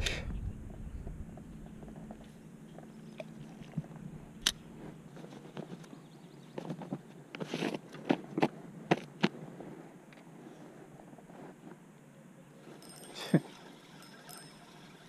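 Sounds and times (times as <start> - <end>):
scratchy rustle: 6.6 - 11.8.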